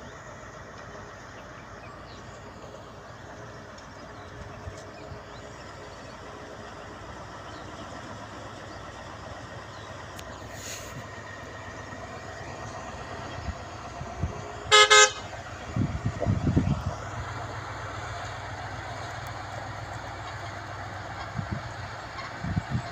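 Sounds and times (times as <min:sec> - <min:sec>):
heavy truck engine running: 0:00.0 - 0:22.9
truck horn toots: 0:14.6 - 0:15.4.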